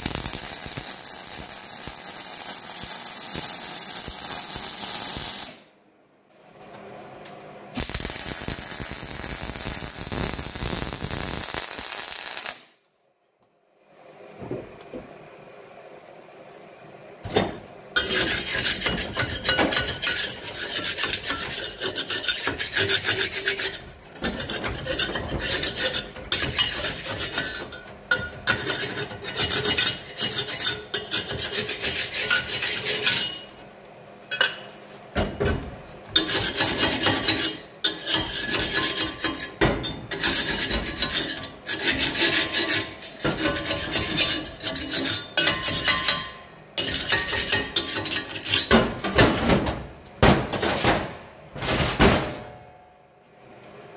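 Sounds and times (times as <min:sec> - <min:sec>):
scraping and rasping on steel: 0:18.0 - 0:33.6, 0:36.2 - 0:48.8.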